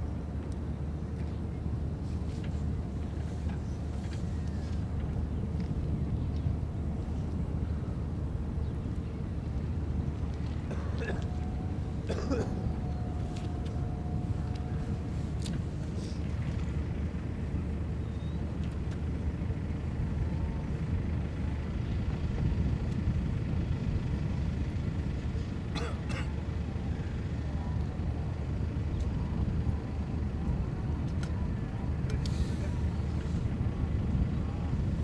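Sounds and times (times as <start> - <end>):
distant harbour rumble: 0.0 - 35.0.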